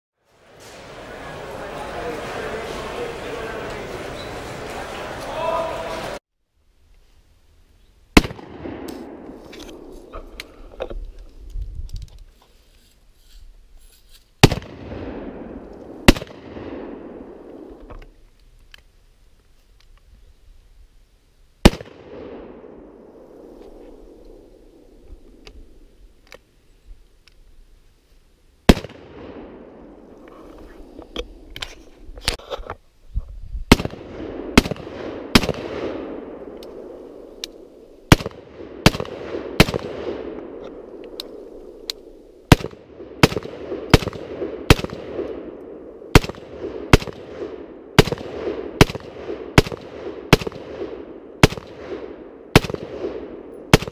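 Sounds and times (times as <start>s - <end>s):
rifle gunshots with echo: 8.2s - 9.9s, 14.4s - 17.8s, 21.6s - 25.7s, 28.7s - 30.2s, 33.7s - 53.9s.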